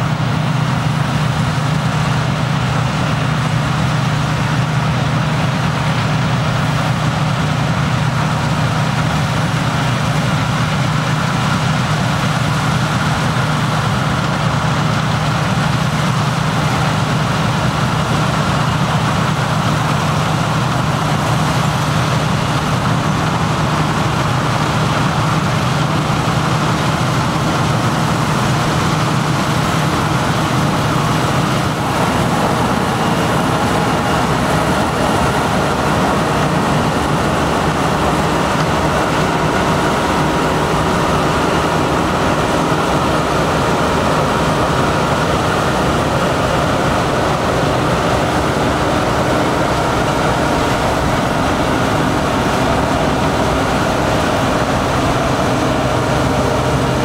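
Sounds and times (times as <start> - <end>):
combine harvester running: 0.0 - 57.0.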